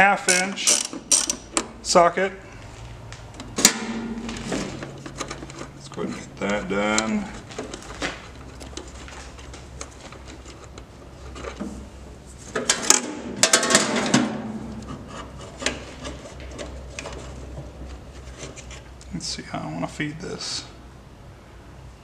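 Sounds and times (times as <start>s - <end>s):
metal clicks and rattles of hand tools: 0.3s - 1.7s.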